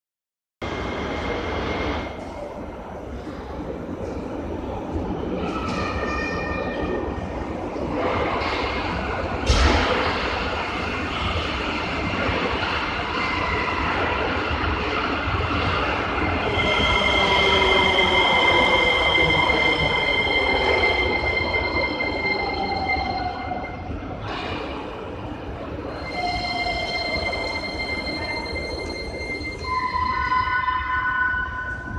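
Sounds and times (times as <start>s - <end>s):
low whine falling in pitch: 0.6s - 31.9s
metro train braking to a stop: 0.6s - 31.9s
train rumbling: 0.6s - 31.9s
high steady squeal: 10.1s - 24.8s, 25.7s - 31.9s.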